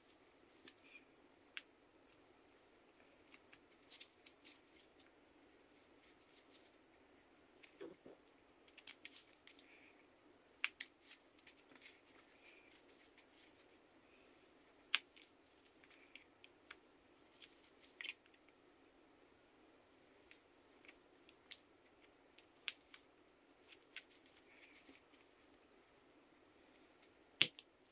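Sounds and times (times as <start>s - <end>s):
knife carving wood: 20.2s - 25.0s.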